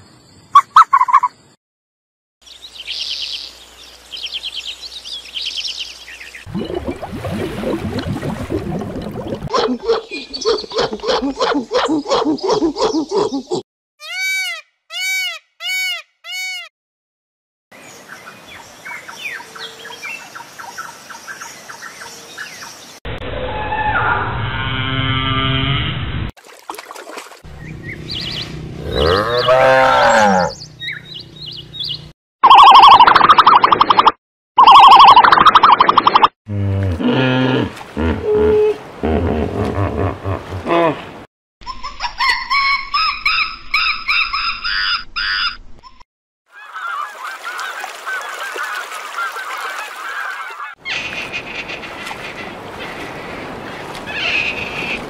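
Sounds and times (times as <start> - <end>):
peacock calls: 14.0 - 16.7, 46.5 - 55.0
small birds chirping: 27.6 - 32.1
hippopotamus deep grunting calls: 28.8 - 30.6.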